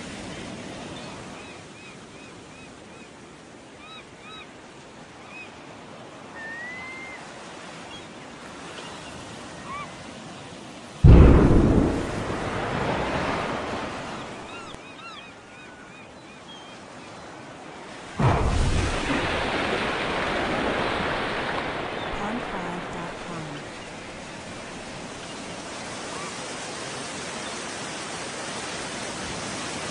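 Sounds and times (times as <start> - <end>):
surf washing on beach: 0.0 - 16.1, 16.7 - 29.9
loud explosion boom: 11.0 - 14.5, 18.2 - 21.0
birds chirping: 11.1 - 17.4, 20.2 - 25.8.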